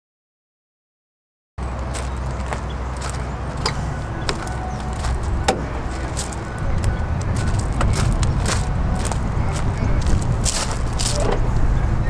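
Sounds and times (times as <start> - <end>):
diesel engine idling: 1.6 - 12.0
footsteps on gravel: 1.8 - 11.5.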